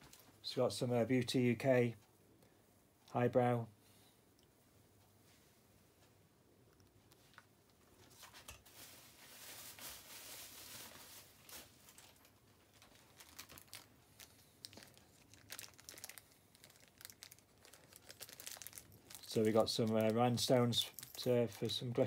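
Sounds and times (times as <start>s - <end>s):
plastic bag crinkling: 8.1s - 22.0s.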